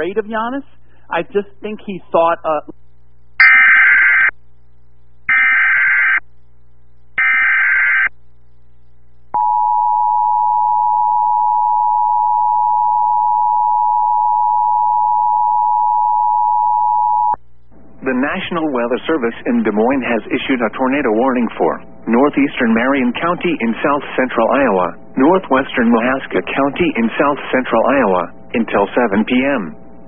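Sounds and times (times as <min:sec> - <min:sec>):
steady warning alarm tone: 0:03.4 - 0:04.3, 0:05.3 - 0:06.2, 0:07.2 - 0:08.1, 0:09.4 - 0:17.4.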